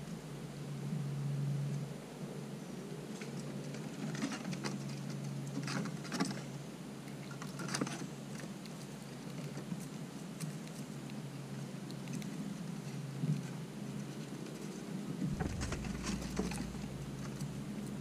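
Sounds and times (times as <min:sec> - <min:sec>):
steady low hum: 0:00.0 - 0:18.0
squirrel chewing crunching clicks: 0:04.6 - 0:18.0.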